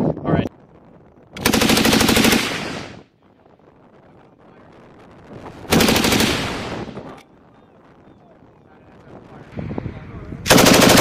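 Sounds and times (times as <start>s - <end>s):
machine gun burst: 1.4s - 2.8s, 5.7s - 6.8s, 10.5s - 11.0s.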